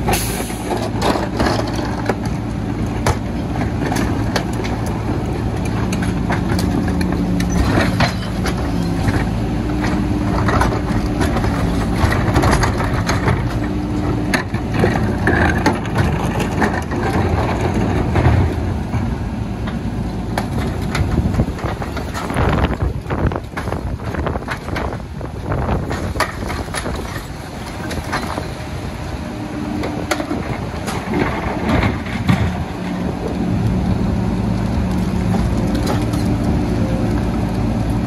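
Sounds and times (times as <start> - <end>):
truck engine and hydraulic hum: 0.0 - 38.0.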